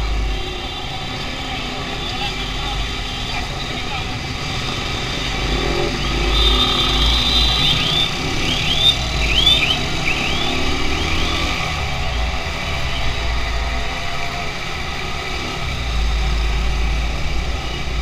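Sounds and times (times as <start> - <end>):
street traffic: 0.0 - 18.0.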